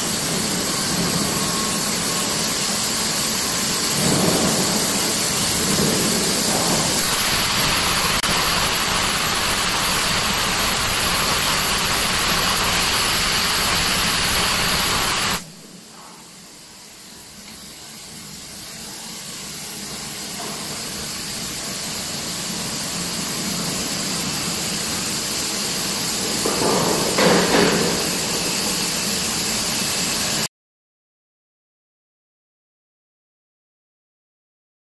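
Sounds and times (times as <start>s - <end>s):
loud steady machinery hiss: 0.0s - 30.5s.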